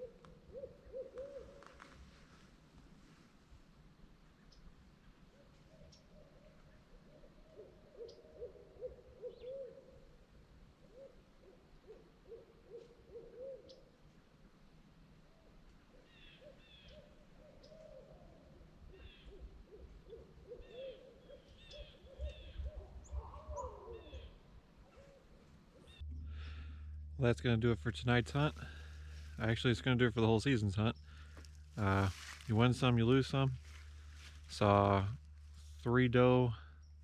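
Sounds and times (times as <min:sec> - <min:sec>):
faint owl hooting: 0:00.0 - 0:02.4, 0:05.3 - 0:14.0, 0:15.3 - 0:27.1.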